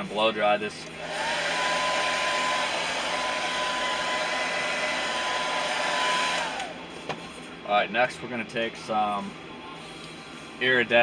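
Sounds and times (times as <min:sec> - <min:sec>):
hair dryer blowing: 0:01.0 - 0:06.9.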